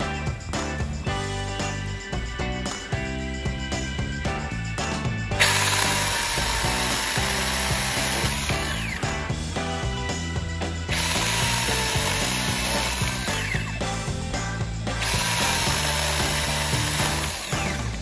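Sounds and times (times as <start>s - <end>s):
background music with beat: 0.0s - 18.0s
mini chainsaw cutting branches: 5.4s - 9.3s, 10.9s - 13.8s, 15.0s - 18.0s.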